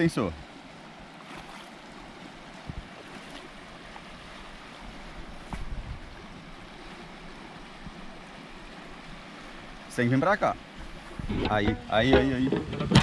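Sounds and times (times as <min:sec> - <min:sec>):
sharp knocks: 0:11.3 - 0:13.0.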